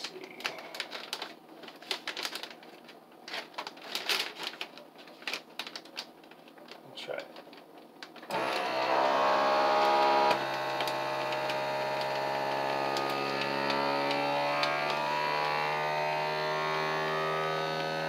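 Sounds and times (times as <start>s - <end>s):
vacuum sealer pump humming: 8.3s - 18.0s.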